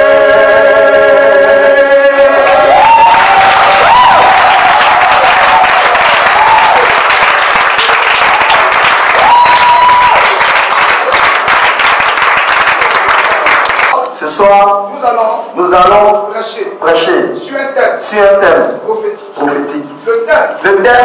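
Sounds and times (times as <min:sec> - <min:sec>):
congregation applauding: 0:02.3 - 0:14.0.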